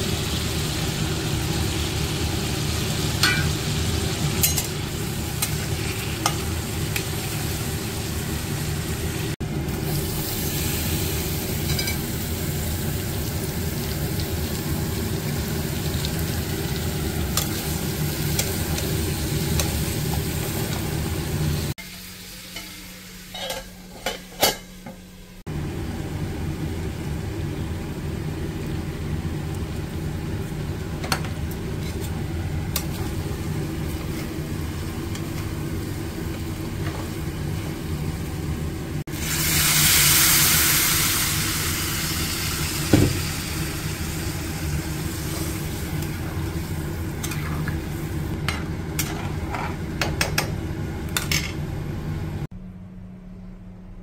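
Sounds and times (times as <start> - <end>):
water hissing in a hot pan: 0.0 - 20.5, 39.0 - 48.4
vegetables frying in a pan: 0.0 - 24.3, 25.5 - 51.7.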